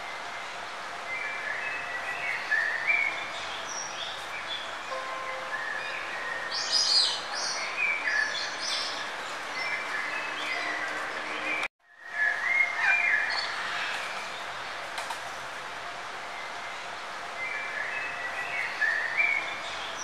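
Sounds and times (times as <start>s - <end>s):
birds chirping and twittering: 0.0s - 20.0s
steady background hiss: 0.0s - 20.0s.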